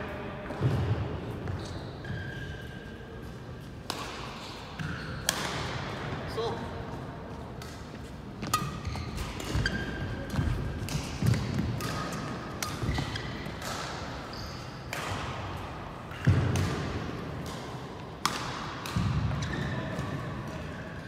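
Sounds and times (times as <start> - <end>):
shoe squeaks: 1.4 - 3.2, 4.8 - 5.3, 8.5 - 10.6, 14.2 - 14.9
racket hitting shuttlecock: 3.8 - 5.9, 7.6 - 20.8.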